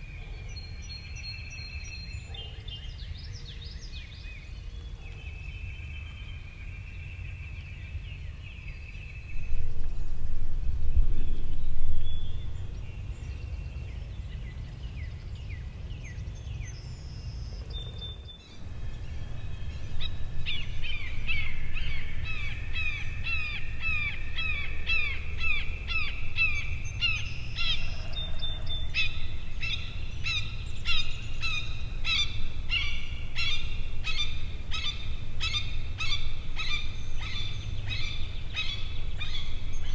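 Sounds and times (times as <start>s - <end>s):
low wind rumble: 0.0s - 39.9s
songbirds singing and calling: 0.0s - 39.9s
loud low rumble: 9.4s - 13.0s.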